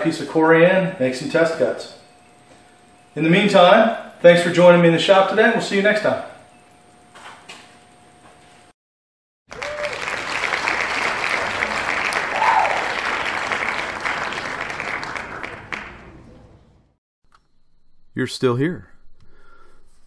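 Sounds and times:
crowd applause: 0:09.5 - 0:16.7.

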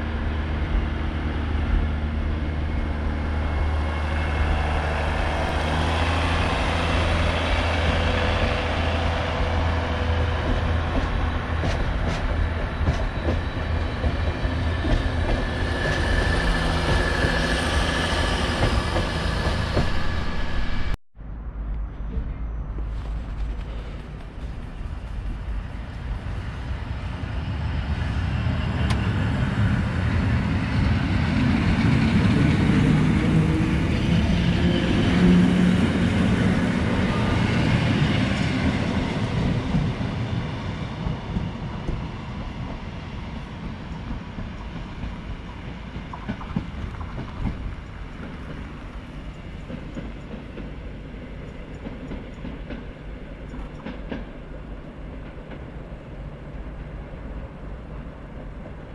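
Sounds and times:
electric train passing: 0:00.0 - 0:58.9.

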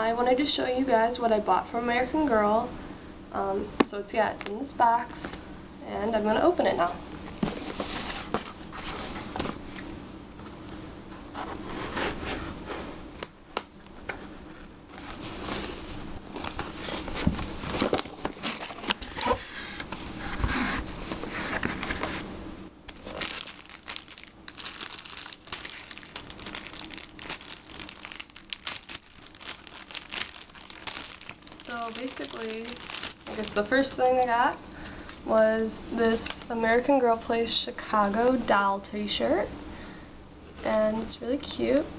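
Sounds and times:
plastic bag crinkling: 0:22.9 - 0:35.3, 0:36.1 - 0:36.6.

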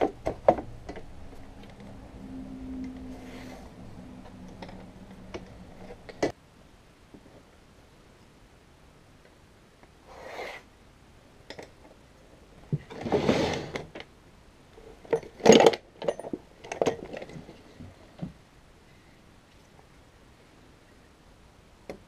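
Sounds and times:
wooden drawer sliding: 0:12.8 - 0:13.9.

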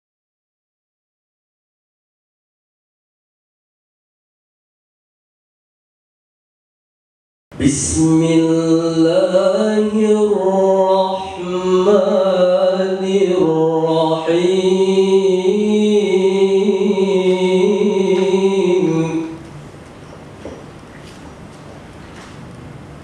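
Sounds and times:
man chanting melodically: 0:07.6 - 0:19.5.

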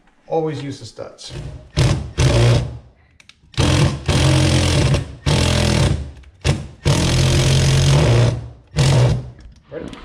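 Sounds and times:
cordless drill running: 0:03.6 - 0:06.0, 0:06.8 - 0:09.2.

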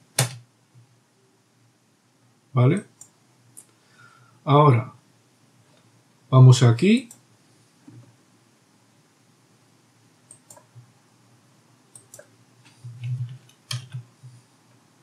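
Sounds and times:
keyboard and mouse clicks: 0:00.1 - 0:00.4, 0:10.3 - 0:10.9, 0:11.9 - 0:14.4.

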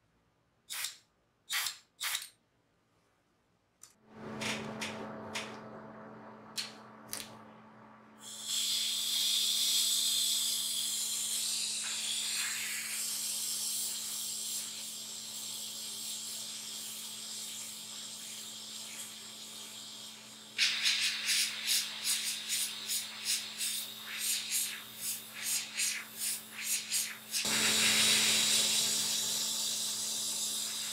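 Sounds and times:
low hum: 0:04.0 - 0:08.5
airbrush spraying hiss: 0:08.2 - 0:30.9.

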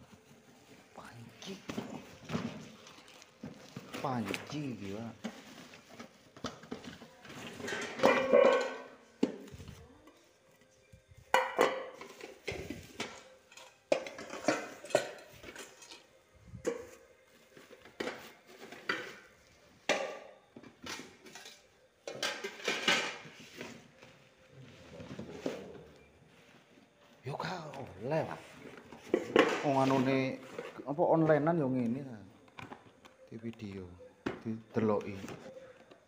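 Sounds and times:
metal pots clinking: 0:07.5 - 0:09.3, 0:11.3 - 0:23.4.

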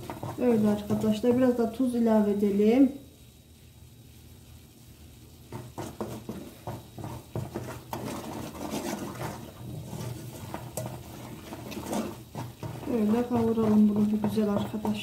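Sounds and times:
wooden spoon scraping a pan: 0:00.0 - 0:01.8, 0:05.5 - 0:15.0.

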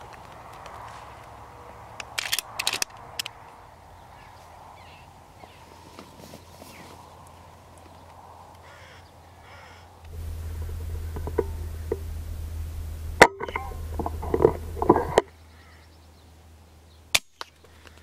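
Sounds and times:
steady low hum: 0:10.0 - 0:15.4.

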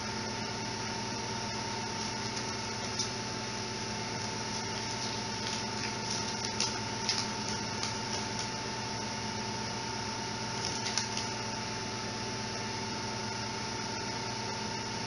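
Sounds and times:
mechanical hum with high whine: 0:00.0 - 0:15.0.

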